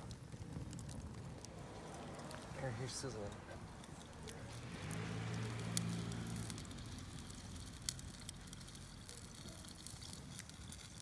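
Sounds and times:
campfire crackling and popping: 0:00.0 - 0:11.0.

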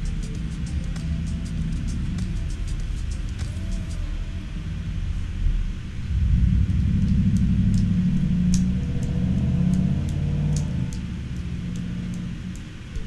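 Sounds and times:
light high ticks: 0:00.0 - 0:04.0, 0:06.8 - 0:13.0
deep sustained bass music: 0:00.0 - 0:13.0.

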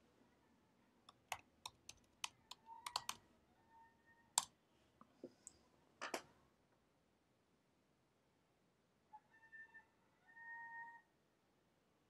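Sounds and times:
computer keyboard typing: 0:01.1 - 0:03.2.

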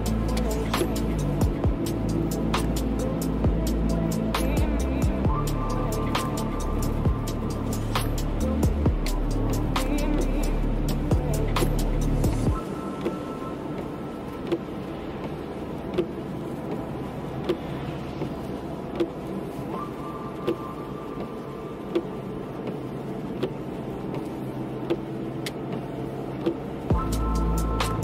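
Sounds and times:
car road and engine noise: 0:00.0 - 0:28.0
windscreen wiper clicks: 0:00.0 - 0:28.0.

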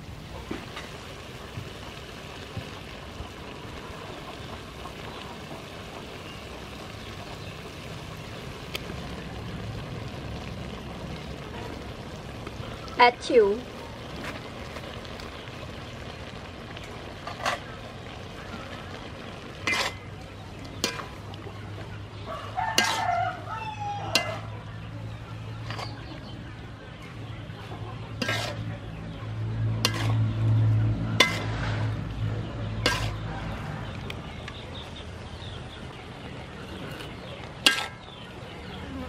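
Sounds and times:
metal spatula scraping a wok: 0:17.2 - 0:17.8, 0:19.5 - 0:21.3, 0:22.4 - 0:23.2, 0:24.1 - 0:24.5, 0:25.6 - 0:26.1, 0:28.0 - 0:28.9, 0:29.8 - 0:30.3, 0:31.2 - 0:32.0, 0:32.7 - 0:33.3, 0:36.8 - 0:38.1
rooster crowing: 0:22.2 - 0:24.5.

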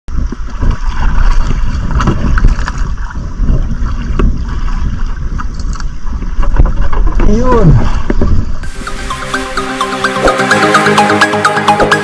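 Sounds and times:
water sloshing against hull: 0:00.1 - 0:08.7
wind rumbling on microphone: 0:00.1 - 0:08.8.

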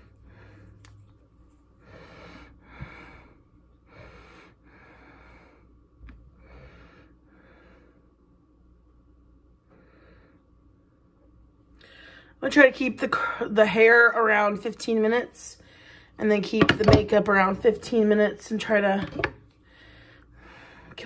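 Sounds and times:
person breathing faintly: 0:00.0 - 0:08.2, 0:19.6 - 0:21.0.

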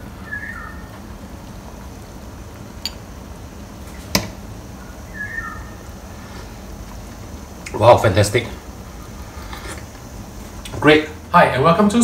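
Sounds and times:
soup simmering in a pot: 0:00.0 - 0:07.9.

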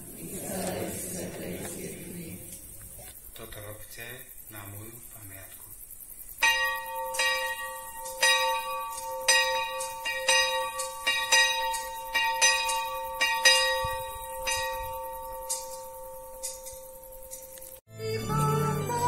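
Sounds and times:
bell ringing: 0:06.4 - 0:17.5.

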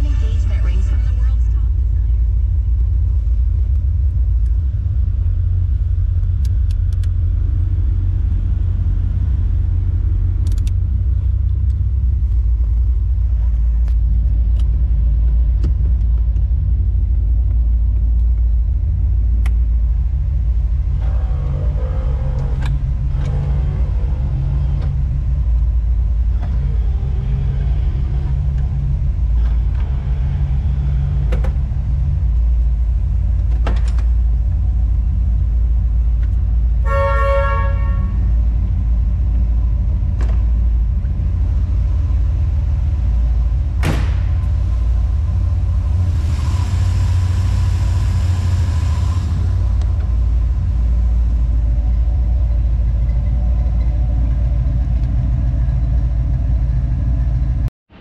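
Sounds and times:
car engine idling: 0:00.0 - 0:58.0.

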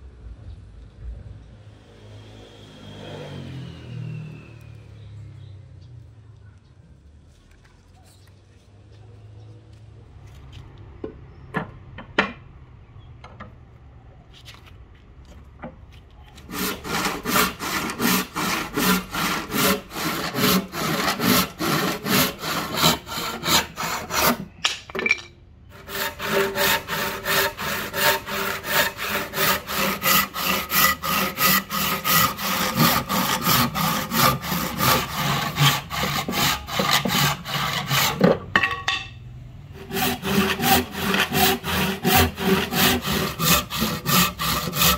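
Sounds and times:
hand saw cutting wood: 0:16.4 - 0:24.5, 0:25.7 - 0:38.4, 0:39.8 - 0:44.9.

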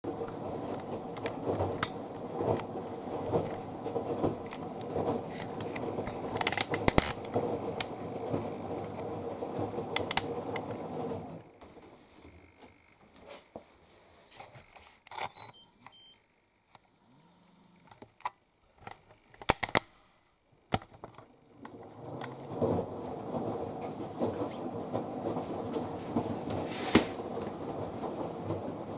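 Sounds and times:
steady noise: 0:00.0 - 0:28.9
electronic beeps: 0:15.3 - 0:16.2.

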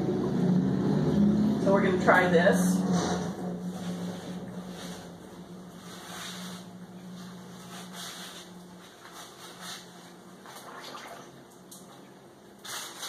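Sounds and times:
low hum: 0:00.0 - 0:10.2
water swishing and splashing in tub: 0:00.4 - 0:13.0.

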